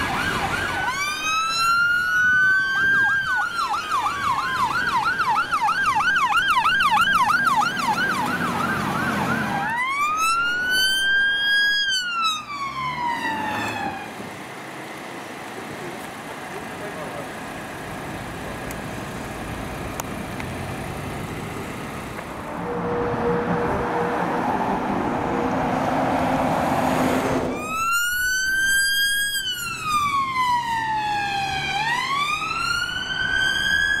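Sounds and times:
ambulance siren wailing: 0.0 - 14.2, 27.4 - 34.0
passing traffic: 0.0 - 34.0.

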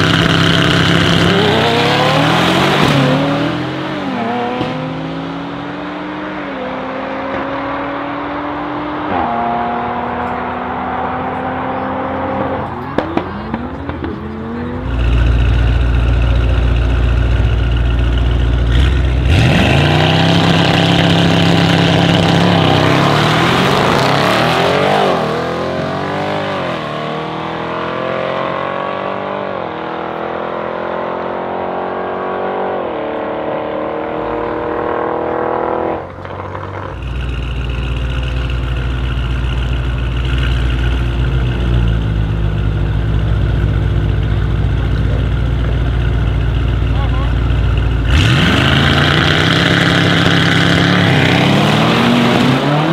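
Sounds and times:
car engines rumbling at idle: 0.0 - 4.8, 9.7 - 27.9, 34.0 - 52.6
cars accelerating through gears: 0.0 - 16.4, 18.6 - 37.0, 48.0 - 52.9.

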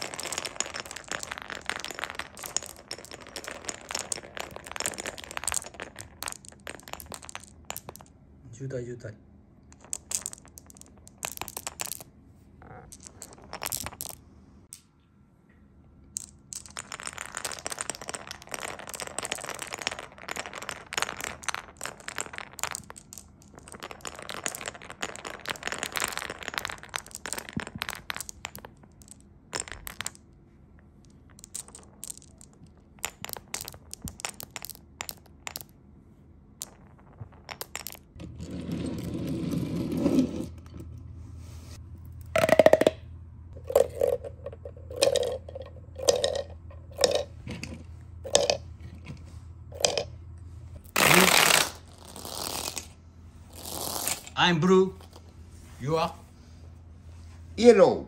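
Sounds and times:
hollow knocks of dropping balls: 0.0 - 8.1, 9.7 - 14.8, 16.2 - 30.3, 31.0 - 35.8, 36.6 - 41.0, 42.2 - 50.2
plastic balls rushing through tube: 0.0 - 8.1, 16.5 - 30.2, 50.8 - 54.4
glass marbles rolling and clicking: 0.0 - 8.2, 9.7 - 14.8, 16.1 - 30.4, 31.0 - 35.8, 36.6 - 41.0, 42.0 - 50.2, 50.8 - 56.2
low hum: 35.6 - 51.0.

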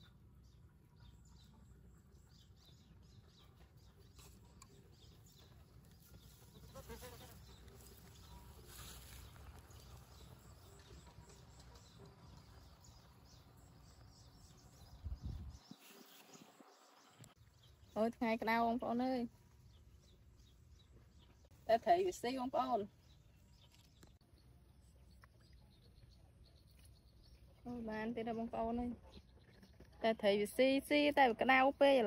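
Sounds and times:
low wind rumble on microphone: 14.1 - 17.3.

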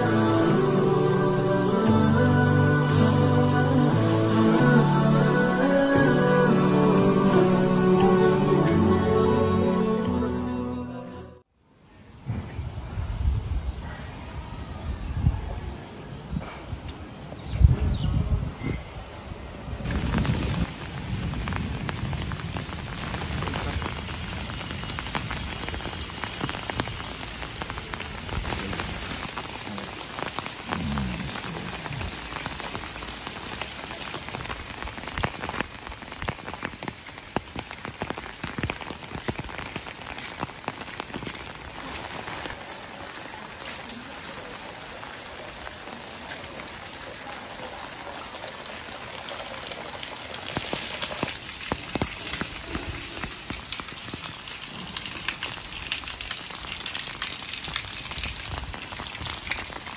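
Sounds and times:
steady rain falling: 18.2 - 59.9.

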